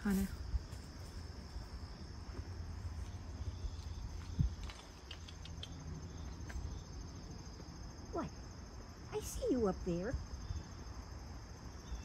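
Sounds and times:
insects trilling: 0.0 - 12.0
faint clicks: 4.6 - 5.8.

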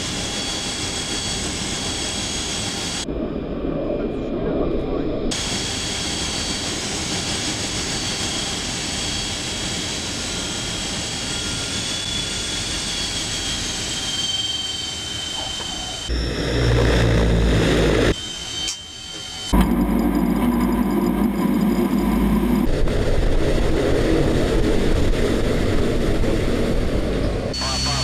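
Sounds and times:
turboprop aircraft taxiing: 0.0 - 28.0
turboprop engine whine: 0.0 - 28.0.

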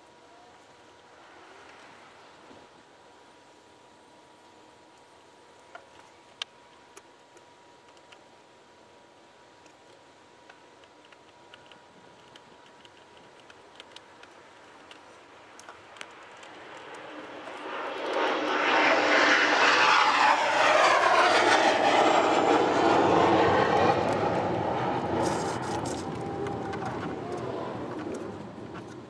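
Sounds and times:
aircraft passing overhead: 16.1 - 29.0.

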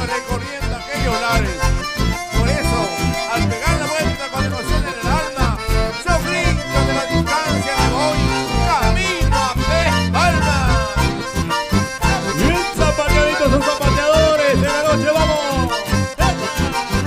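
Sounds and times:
accordion: 0.0 - 17.0
live band playing: 0.0 - 17.0
pulsing low beat: 7.8 - 14.6.

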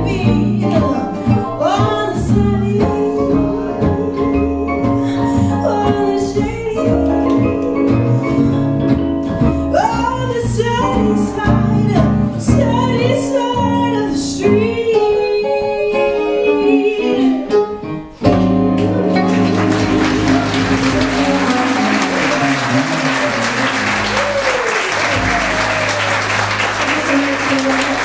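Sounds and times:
woman singing: 0.0 - 8.5, 9.7 - 17.6
upright double bass: 0.0 - 15.0, 18.2 - 28.0
acoustic guitar: 0.0 - 28.0
stage piano: 0.0 - 28.0.

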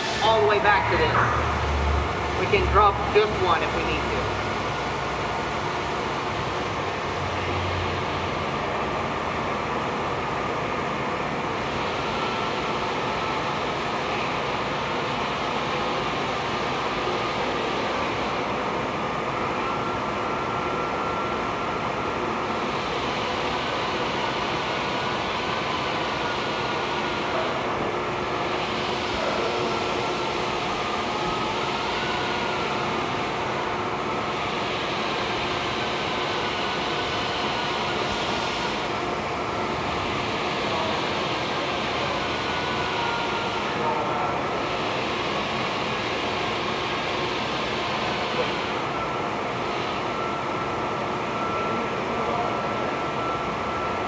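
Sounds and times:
faint whine: 0.0 - 4.4
machine running noise: 0.0 - 54.0.

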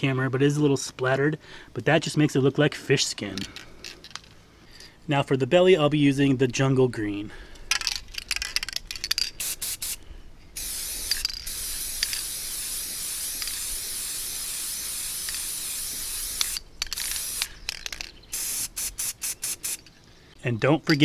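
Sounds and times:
spray can rattling clicks: 7.7 - 10.0, 10.6 - 19.9
spray paint hissing: 9.1 - 10.0, 10.6 - 19.9.

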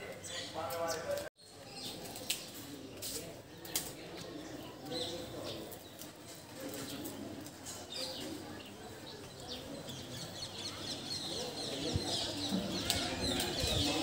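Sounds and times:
faint murmur of voices: 0.0 - 14.0
small birds chirping: 0.0 - 14.0.

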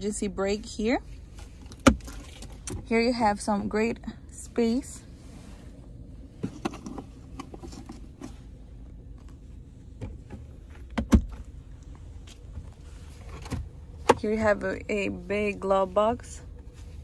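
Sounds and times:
low cabin hum: 0.0 - 17.0
armrest lid shutting thump: 10.0 - 11.4.

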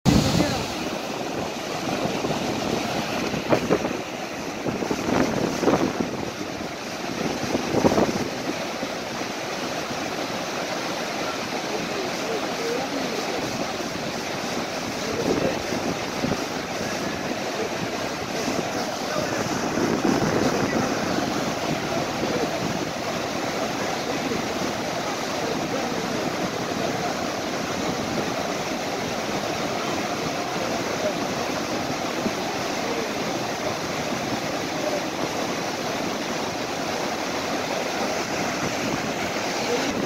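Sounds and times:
river rapids roaring: 0.1 - 40.0.

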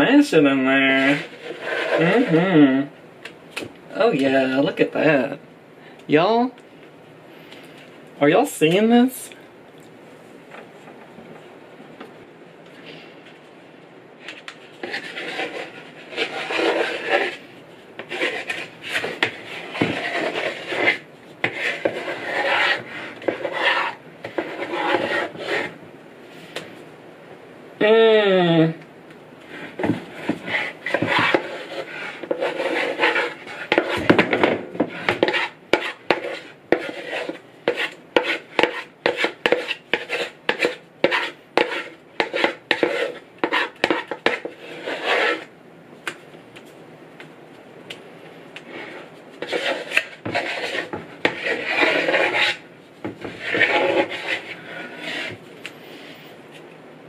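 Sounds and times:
spatula scraping a wooden bowl: 1.0 - 2.4, 14.2 - 17.4, 18.0 - 25.8, 29.6 - 45.5, 48.7 - 55.4.

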